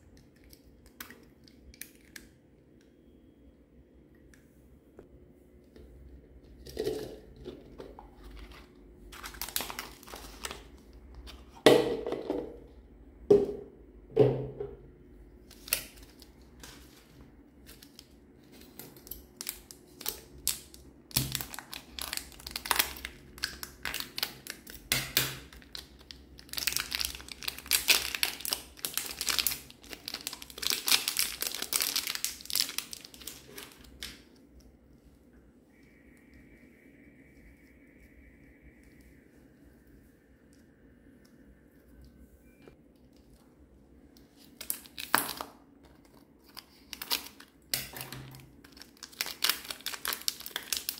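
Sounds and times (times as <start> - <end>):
crinkling and tearing: 8.4 - 10.8, 25.6 - 34.2, 44.2 - 50.9.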